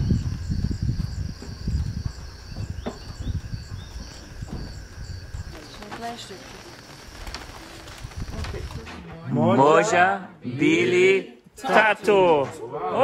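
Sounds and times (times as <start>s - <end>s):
crickets chirping: 0.0s - 9.2s.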